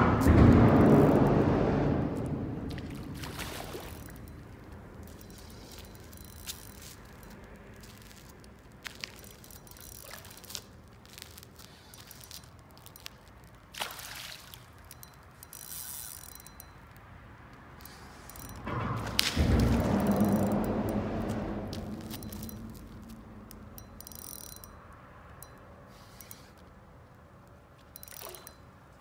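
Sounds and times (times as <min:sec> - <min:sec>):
reel clicks: 0:03.6 - 0:29.0
fishing reel whirring: 0:03.7 - 0:13.5, 0:14.4 - 0:17.0, 0:17.8 - 0:18.6, 0:19.4 - 0:26.7, 0:27.9 - 0:28.6.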